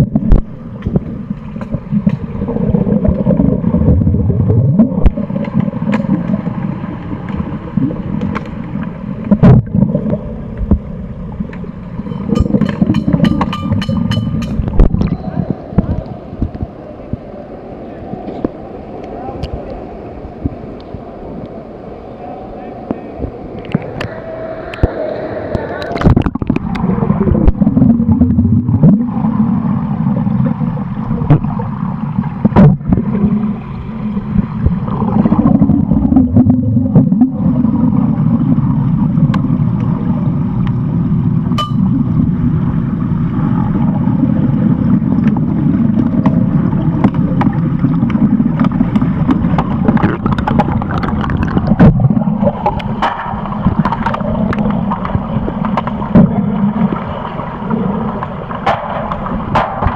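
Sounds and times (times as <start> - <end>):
muffled underwater rumble: 0.0 - 59.9
sharp clicks and knocks: 11.5 - 15.1.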